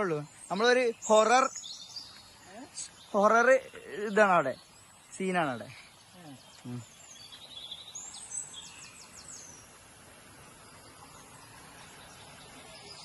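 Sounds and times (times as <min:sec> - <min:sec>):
birds trilling: 0:00.0 - 0:13.0
insects: 0:00.0 - 0:13.0
outdoor hiss: 0:00.0 - 0:13.0.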